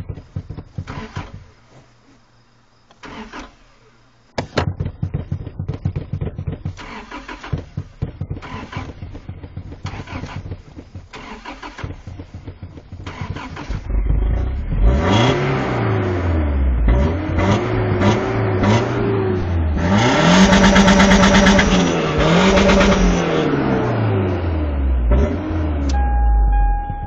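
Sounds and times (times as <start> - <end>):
car engine cranking: 0.0 - 1.9, 2.9 - 27.0
car engine revving: 5.6 - 27.0.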